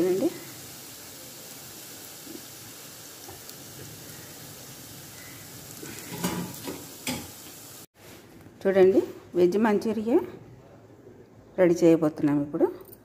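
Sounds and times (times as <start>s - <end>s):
food deep-frying in oil: 0.0s - 7.9s
pan clattering: 6.0s - 7.4s.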